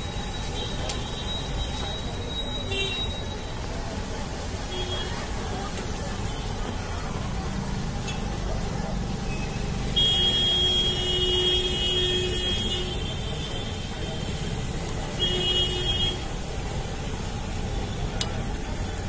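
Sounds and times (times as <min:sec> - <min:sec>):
vehicle horn: 0:10.0 - 0:13.6.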